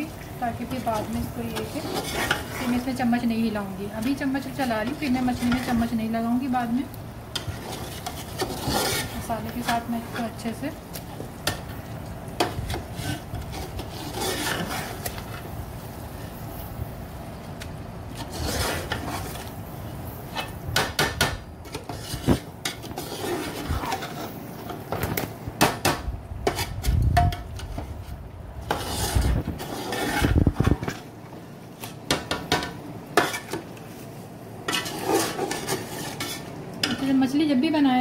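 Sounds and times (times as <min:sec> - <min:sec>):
metal spoon scraping a pot: 0:00.7 - 0:03.2, 0:04.0 - 0:05.9, 0:07.3 - 0:10.5, 0:12.4 - 0:15.4, 0:18.2 - 0:19.5, 0:21.7 - 0:24.4, 0:28.6 - 0:30.9, 0:34.6 - 0:37.1.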